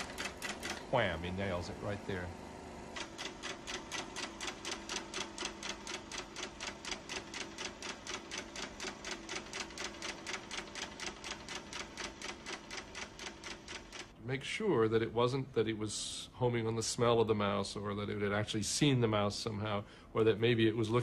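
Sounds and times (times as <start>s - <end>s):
film projector clicking: 0.0s - 1.2s, 2.9s - 14.2s.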